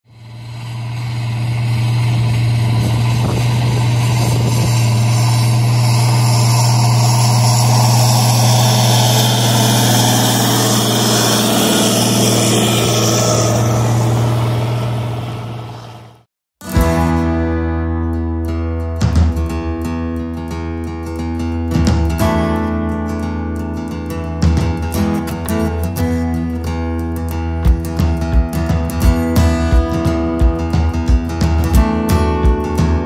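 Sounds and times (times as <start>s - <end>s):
tractor diesel engine running: 0.0s - 17.0s, 23.6s - 33.0s.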